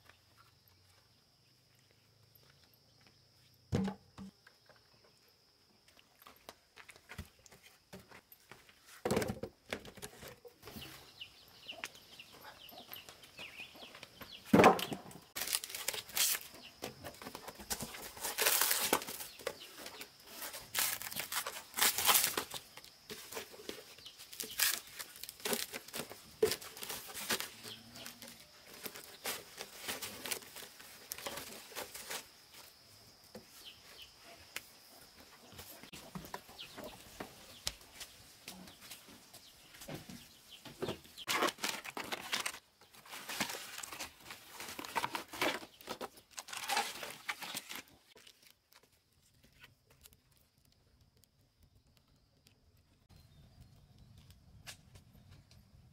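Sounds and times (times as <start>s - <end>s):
dry wood cracking and tearing: 14.6s - 23.4s, 24.2s - 31.6s, 41.3s - 53.0s.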